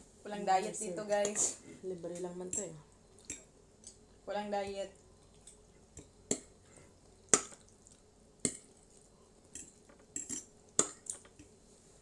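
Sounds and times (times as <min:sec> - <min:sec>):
cutlery clinking against plates: 0:09.6 - 0:10.5.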